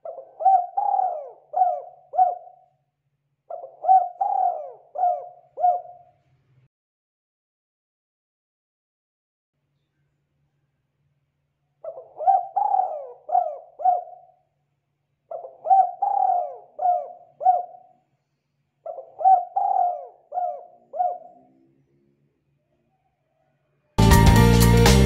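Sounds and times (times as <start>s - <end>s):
dove cooing: 0.0s - 2.7s, 3.5s - 6.1s, 11.8s - 14.3s, 15.3s - 17.9s, 18.9s - 21.7s.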